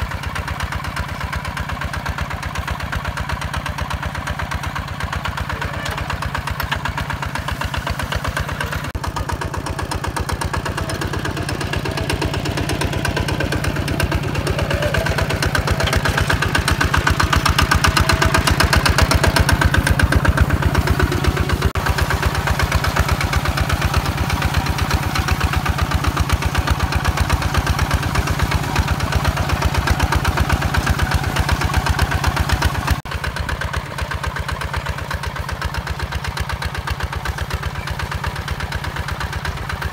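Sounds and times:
diesel tractor engine under load: 0.0 - 39.9.

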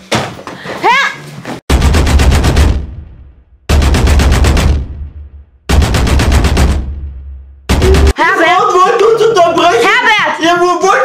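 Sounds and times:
rapid-fire rattling bursts: 1.7 - 8.1
deep bass: 1.7 - 8.2.

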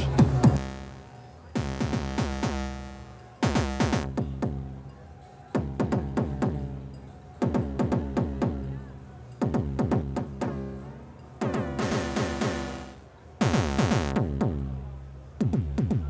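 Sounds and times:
synthesized kick drums: 0.0 - 4.8, 5.6 - 6.7, 7.4 - 8.7, 9.4 - 10.7, 11.4 - 14.8, 15.4 - 16.0.

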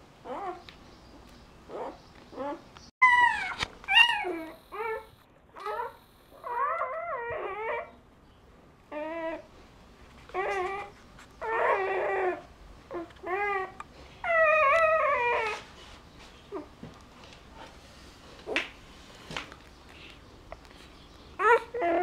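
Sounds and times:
puppies squealing and whimpering: 0.2 - 0.6, 1.7 - 8.0, 8.9 - 9.5, 10.3 - 15.7, 21.4 - 22.0.

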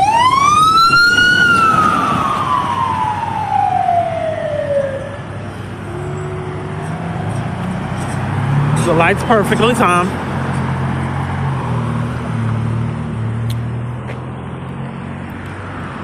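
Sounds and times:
fire engine wail siren: 0.0 - 12.6
road traffic: 0.0 - 16.0.

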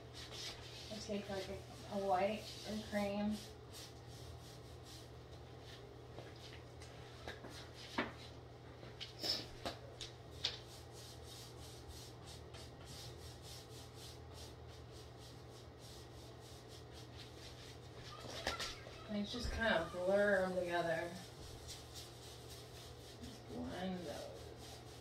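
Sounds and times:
paint brush scrubbing wood: 0.1 - 5.8, 10.4 - 18.2, 18.8 - 25.0.

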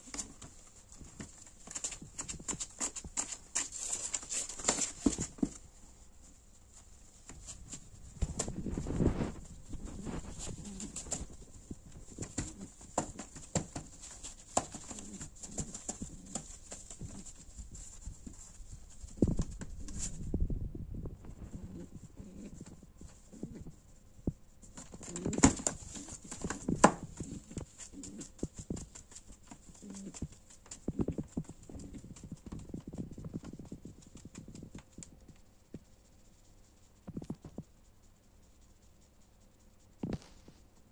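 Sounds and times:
pigeon tapping and wing slaps: 0.0 - 5.7, 7.2 - 20.2, 24.7 - 35.4
pigeon low calls: 24.9 - 32.8.

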